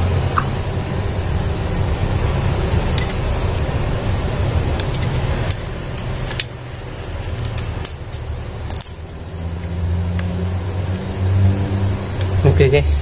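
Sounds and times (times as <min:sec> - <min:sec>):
steady low hum: 0:00.0 - 0:13.0
pliers clicking on metal: 0:07.2 - 0:09.2.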